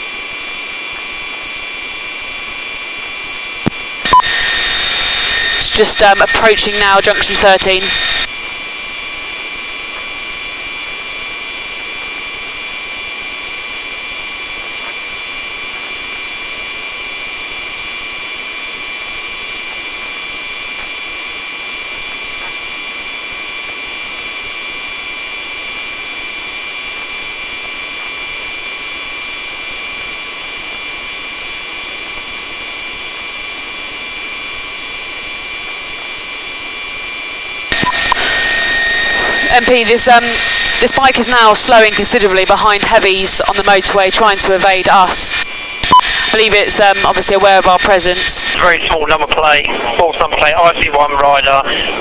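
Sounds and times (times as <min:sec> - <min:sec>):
high constant whining tones: 0:00.0 - 0:52.0
helicopter turbine noise: 0:02.6 - 0:12.8, 0:36.9 - 0:52.0.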